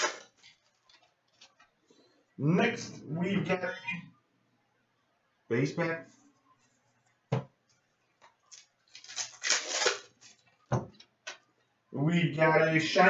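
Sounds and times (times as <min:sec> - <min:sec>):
foil wrapper crinkling: 0:00.0 - 0:01.6, 0:08.5 - 0:10.7.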